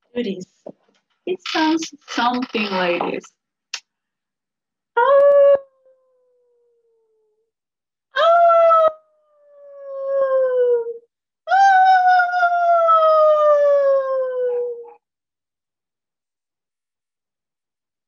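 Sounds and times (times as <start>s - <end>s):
woman imitating coyote howl: 8.2s - 9.0s.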